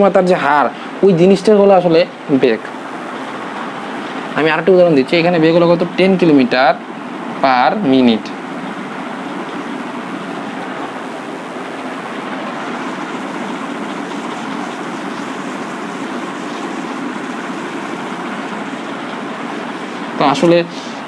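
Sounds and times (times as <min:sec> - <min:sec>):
steady rushing noise: 0:00.0 - 0:21.0.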